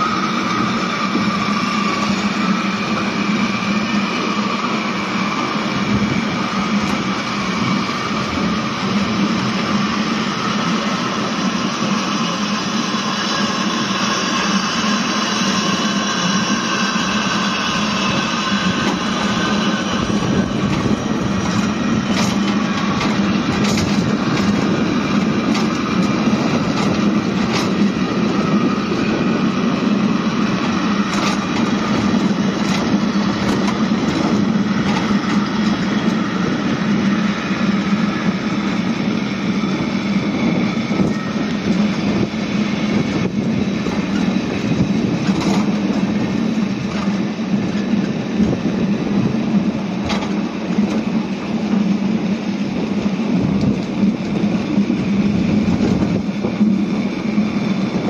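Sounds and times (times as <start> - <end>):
wheels rumbling on rails: 0.0 - 58.0.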